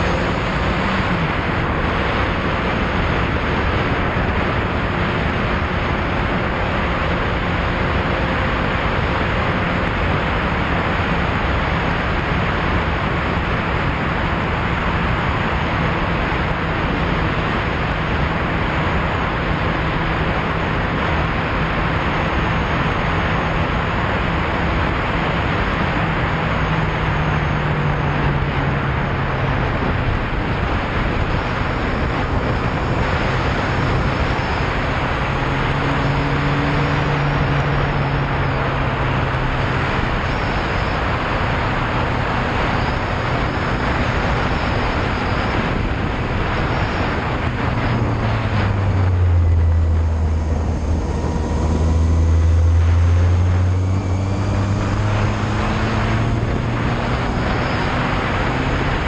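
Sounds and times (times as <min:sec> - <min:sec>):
motorcycle engine: 0:00.0 - 0:59.0
wind rush on microphone: 0:00.0 - 0:59.0.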